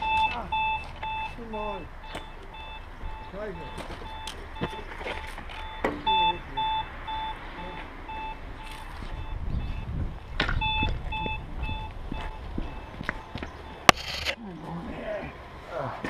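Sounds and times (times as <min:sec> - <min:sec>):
pedestrian crossing beeps: 0:00.0 - 0:14.5.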